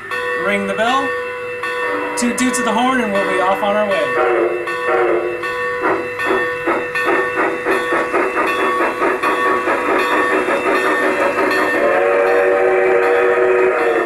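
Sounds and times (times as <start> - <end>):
locomotive bell ringing: 0.0 - 14.0
model steam locomotive chuffing: 0.0 - 14.0
steam whistle blowing: 1.8 - 2.5, 4.2 - 6.4, 7.4 - 14.0.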